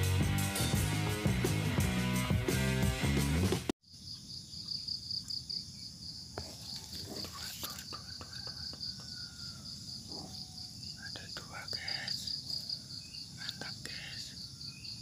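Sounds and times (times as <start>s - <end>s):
insect chirping: 3.8s - 15.0s.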